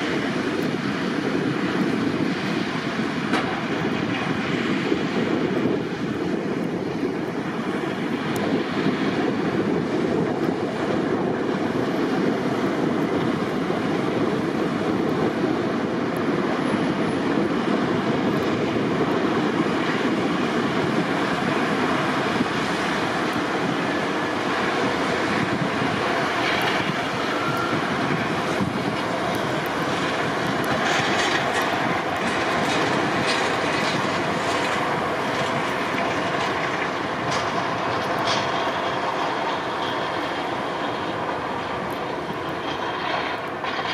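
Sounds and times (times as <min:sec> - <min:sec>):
snow-clearing machinery rumble: 0:00.0 - 0:43.9
light clicks and crunches: 0:28.5 - 0:40.2.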